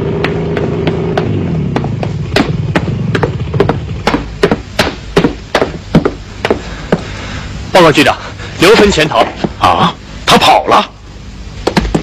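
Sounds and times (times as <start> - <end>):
low engine hum: 0.0 - 4.7.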